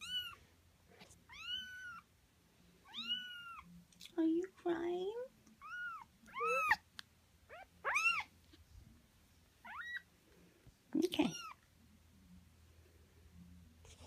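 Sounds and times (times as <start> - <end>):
kittens mewing: 5.6 - 6.8, 7.5 - 8.3.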